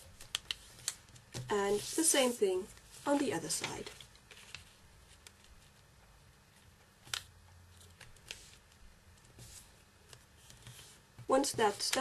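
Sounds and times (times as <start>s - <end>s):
paper being folded: 0.1s - 5.8s.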